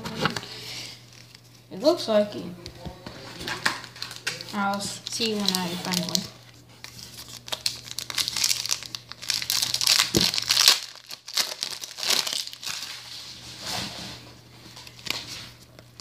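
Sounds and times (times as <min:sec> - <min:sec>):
foil wrapper crinkling: 0:01.0 - 0:01.5, 0:03.4 - 0:13.3.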